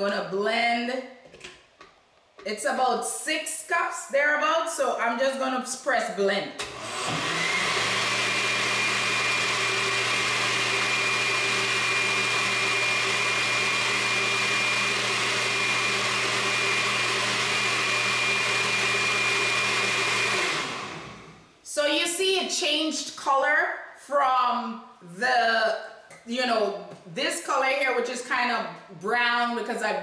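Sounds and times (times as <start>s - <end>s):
blender running: 6.6s - 21.6s.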